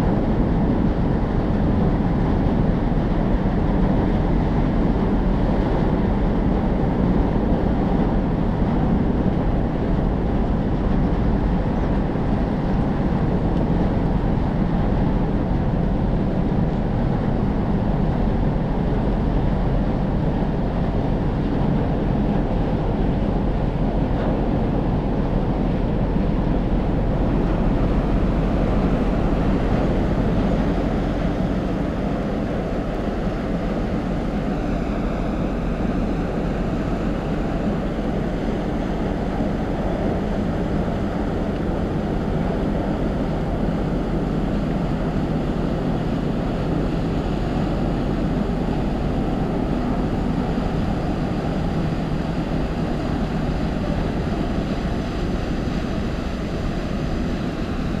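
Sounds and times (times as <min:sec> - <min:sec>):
ship engines droning: 0:00.0 - 0:58.0
water churning: 0:20.5 - 0:58.0.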